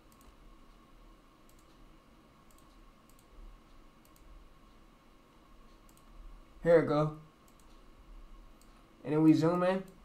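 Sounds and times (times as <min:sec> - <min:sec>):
computer mouse clicks: 0:00.0 - 0:00.8, 0:01.4 - 0:01.8, 0:02.4 - 0:04.8, 0:05.7 - 0:06.2, 0:07.4 - 0:07.8, 0:08.6 - 0:08.8
low steady hum: 0:00.0 - 0:10.0.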